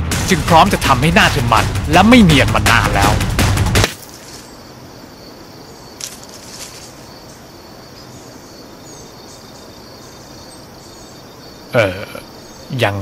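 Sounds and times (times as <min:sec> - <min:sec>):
insects droning: 0:00.4 - 0:13.0.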